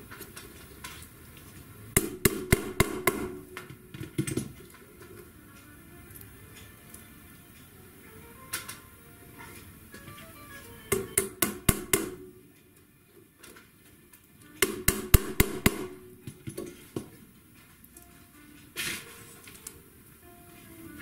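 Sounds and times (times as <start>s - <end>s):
hammer driving tacks into wood: 2.0s - 4.5s, 10.9s - 12.3s, 14.6s - 16.7s.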